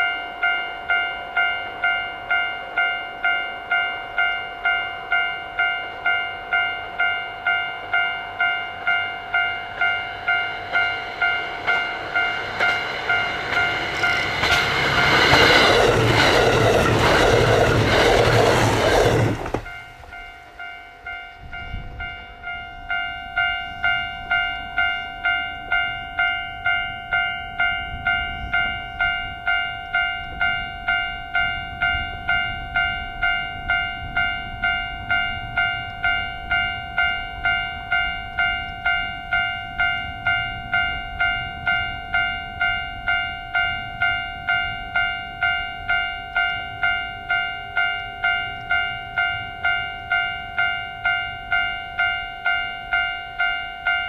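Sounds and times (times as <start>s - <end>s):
level-crossing bell ringing: 0.0s - 54.0s
low wind rumble: 8.8s - 47.4s.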